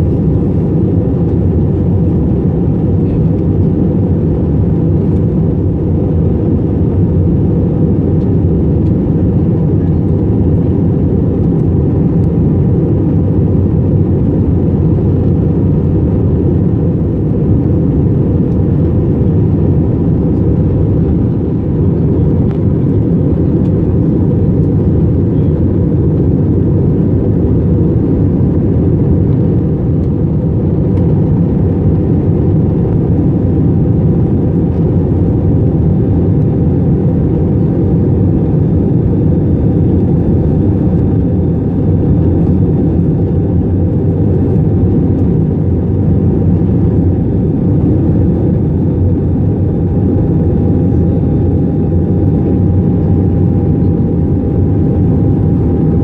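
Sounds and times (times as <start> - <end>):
faint engine whine: 0.0 - 56.0
jet engine rumble in cabin: 0.0 - 56.0.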